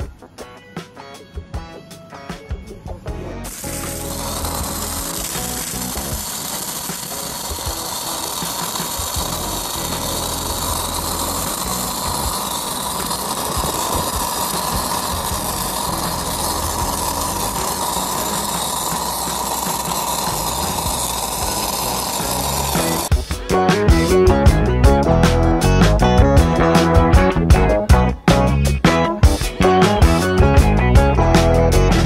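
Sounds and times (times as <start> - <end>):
welding arc crackling and sizzling: 3.4 - 23.4.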